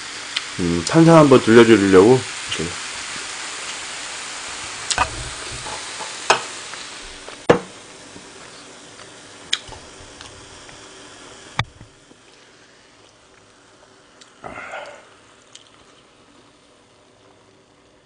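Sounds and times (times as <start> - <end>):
soda fizzing: 0.0 - 18.0.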